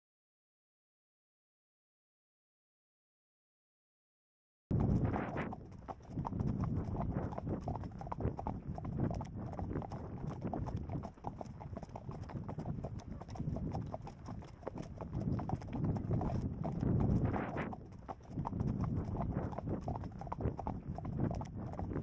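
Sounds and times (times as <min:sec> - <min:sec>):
horse hooves on dirt track: 0:04.7 - 0:22.0.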